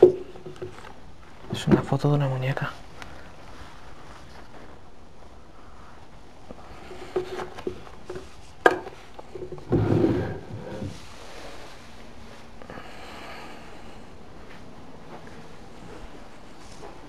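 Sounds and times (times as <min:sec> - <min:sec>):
wooden drawer sliding shut: 0:09.6 - 0:11.0.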